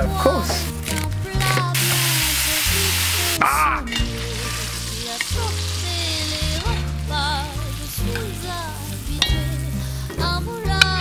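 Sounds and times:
music with low bass notes: 0.0 - 11.0
steak sizzling in a frying pan: 1.7 - 3.4, 4.0 - 9.7.

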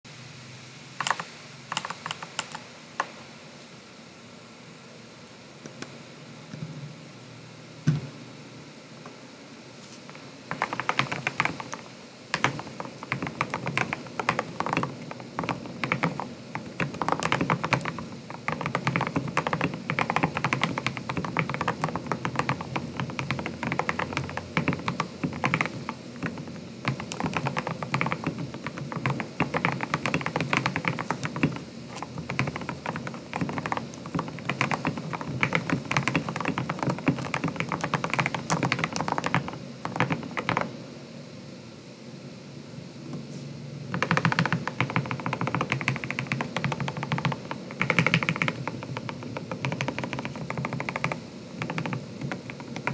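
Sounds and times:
fast typing on mechanical keyboard: 1.0 - 2.6, 10.5 - 40.7, 43.9 - 52.9.

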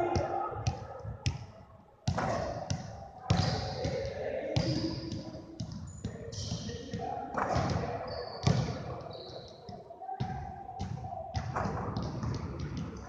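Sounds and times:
shoe squeaks: 7.8 - 9.7
basketball bouncing on wood floor: 10.2 - 13.0.

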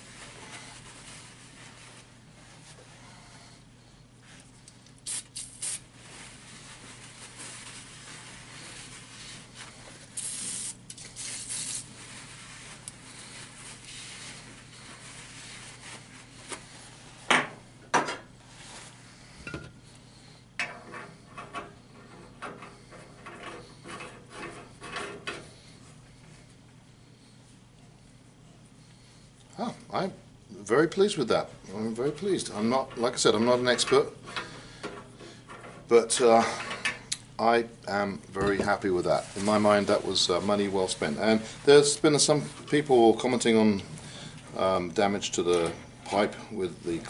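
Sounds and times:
rag rubbing on steel pipe: 20.7 - 25.6.

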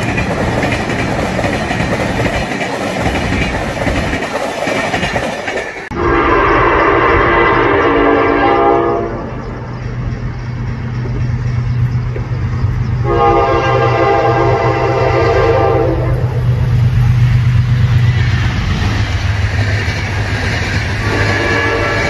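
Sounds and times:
locomotive horn blast: 5.9 - 9.6, 13.0 - 16.4, 21.0 - 22.0.

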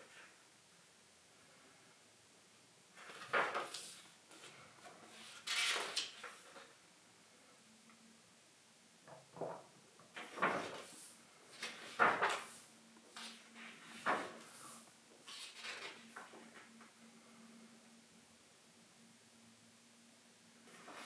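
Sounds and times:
book pages turning: 3.0 - 4.5, 5.1 - 6.7, 11.5 - 16.7.

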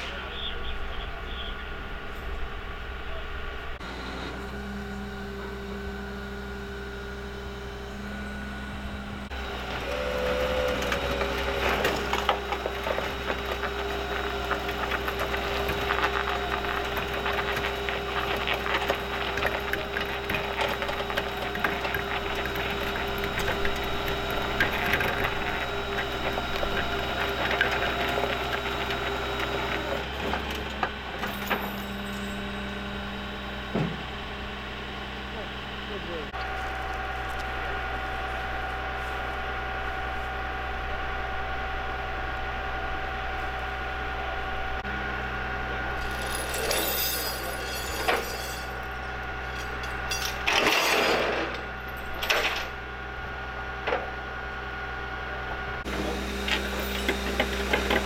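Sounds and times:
truck engine humming: 0.0 - 50.5, 51.4 - 58.0
crackling and crunching: 10.8 - 30.5.

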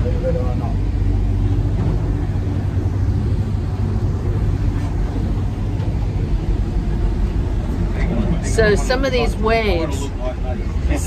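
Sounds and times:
boat engine drone: 0.0 - 11.0.

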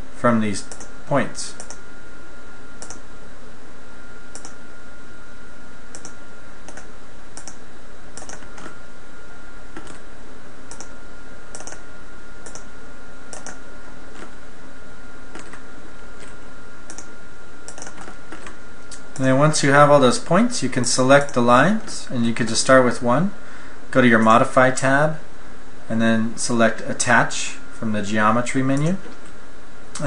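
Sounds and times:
faint constant whine: 0.0 - 30.0
computer mouse clicks: 0.7 - 0.9, 2.8 - 3.0, 4.4 - 4.6, 5.9 - 7.6, 8.2 - 8.7, 9.8 - 10.0, 10.7 - 10.9, 11.5 - 11.8, 12.4 - 12.7, 13.3 - 13.6, 15.3 - 15.6, 16.2 - 17.1, 17.7 - 19.0.

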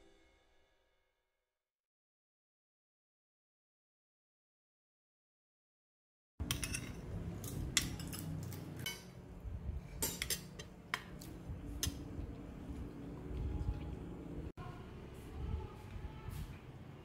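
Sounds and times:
cutlery clinking on a plate: 6.4 - 9.2, 10.0 - 11.2.

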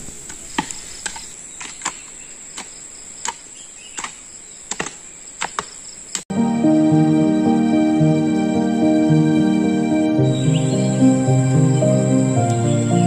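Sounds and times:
hand hoes chopping soil: 0.2 - 5.8
high-pitched insect drone: 8.9 - 13.0.

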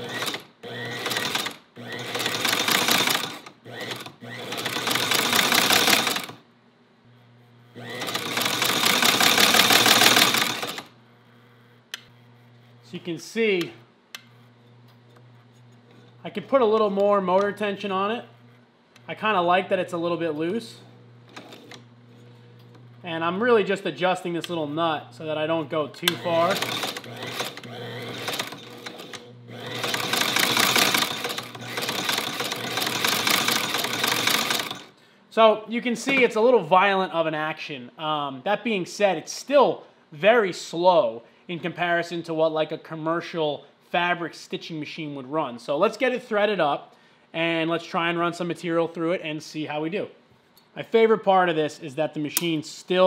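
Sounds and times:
sewing machine rapid clatter: 0.0 - 6.4, 7.8 - 10.9, 26.1 - 34.9.

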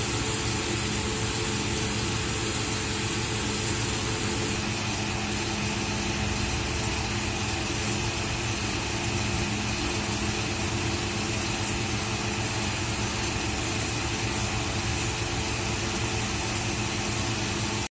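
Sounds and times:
steady mechanical hum: 0.0 - 17.9.

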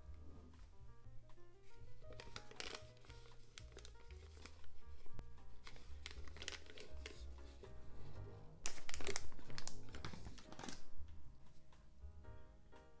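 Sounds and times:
soft background music: 0.0 - 13.0
plastic piping bag crinkling: 1.6 - 11.2.

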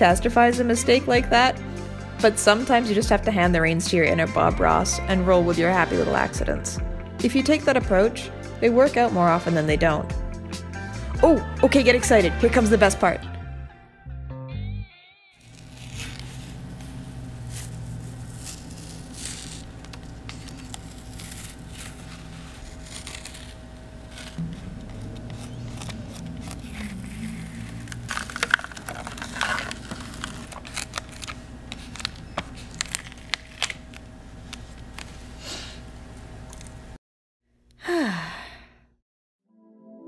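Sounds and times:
masking fluid peeling off paper: 15.4 - 35.2
rubbery crinkling and crackles: 15.4 - 35.4.

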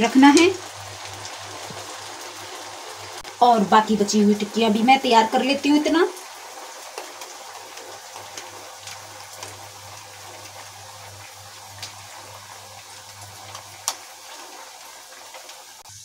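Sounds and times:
deep-frying sizzle with pops: 0.0 - 16.0.

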